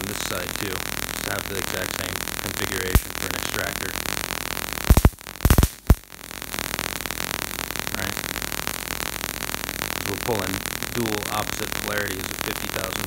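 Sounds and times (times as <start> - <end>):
crackling buzz of electric arcing: 0.0 - 13.0
sharp spark snaps: 0.4 - 6.1.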